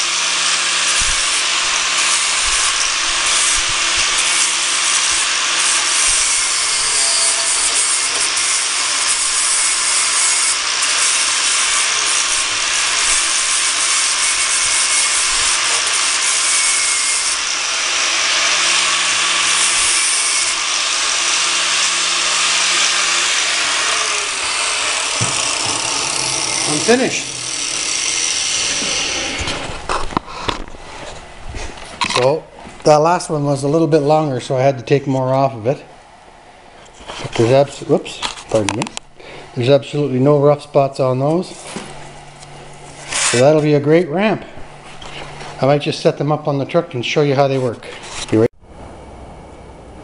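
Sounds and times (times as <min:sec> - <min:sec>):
angle grinder grinding metal: 0:00.0 - 0:30.2, 0:42.4 - 0:44.4.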